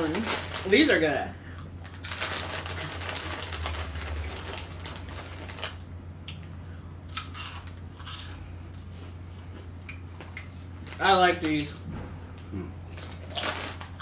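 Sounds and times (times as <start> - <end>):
snack bags crinkling: 0.0 - 5.8, 10.8 - 11.8, 12.9 - 14.0
steady low hum: 0.0 - 14.0
crunchy snacks being eaten: 1.8 - 5.8, 6.7 - 8.4, 12.6 - 14.0.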